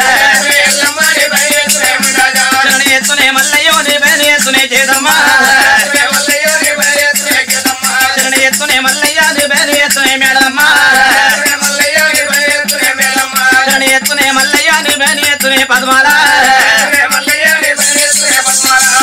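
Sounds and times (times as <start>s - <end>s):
fast percussion: 0.0s - 19.0s.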